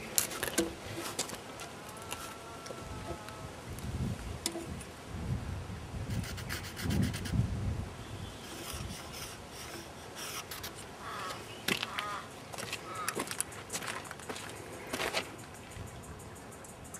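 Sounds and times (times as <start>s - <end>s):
scratching on wooden log: 0.2s - 2.4s, 6.1s - 7.4s, 8.4s - 11.4s.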